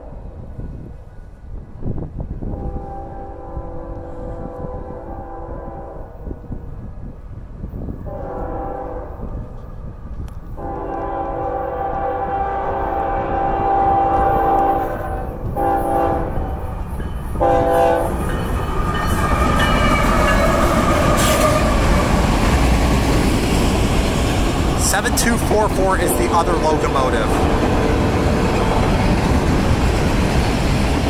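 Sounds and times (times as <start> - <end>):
wind rumble on microphone: 0.0 - 25.2
train rolling past: 0.0 - 31.0
locomotive air horn blasts: 2.5 - 6.2, 8.1 - 9.3, 10.6 - 16.6, 17.4 - 18.2, 25.7 - 28.2.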